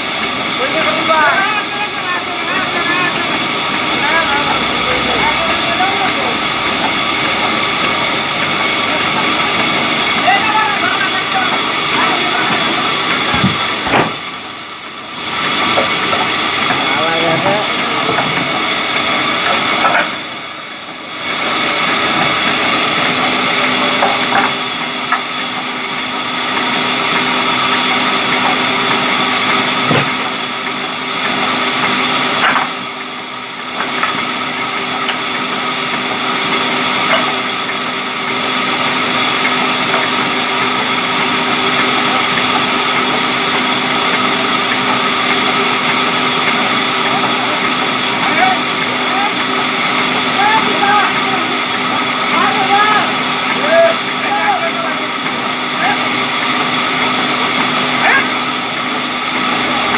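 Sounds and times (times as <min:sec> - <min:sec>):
band saw cutting log: 0:00.2 - 0:59.9.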